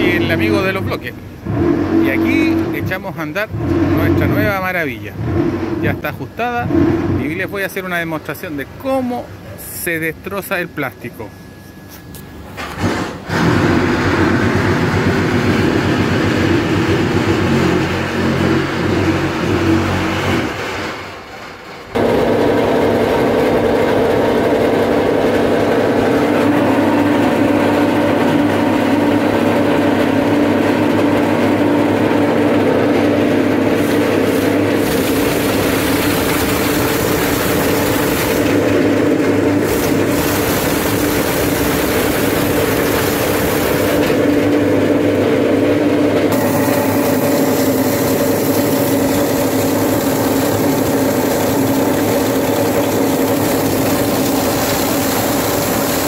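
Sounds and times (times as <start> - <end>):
plastic shredder grinding: 22.0 - 56.0.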